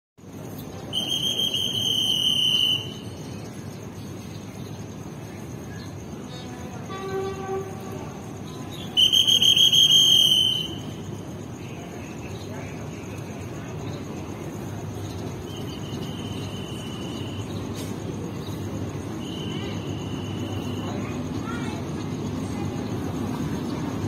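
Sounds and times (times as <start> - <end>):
high insect chirr: 0.2 - 24.0
trilling whistle: 0.8 - 3.3, 8.8 - 11.2, 15.5 - 17.6, 19.2 - 21.0
faint locomotive horn blast: 6.7 - 8.1.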